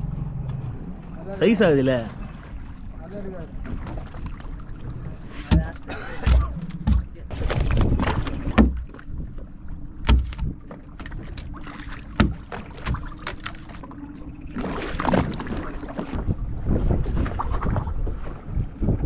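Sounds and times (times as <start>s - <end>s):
knocks against boat hull: 5.4s - 9.0s, 10.0s - 11.1s, 12.1s - 13.1s
wind on microphone: 16.1s - 19.0s.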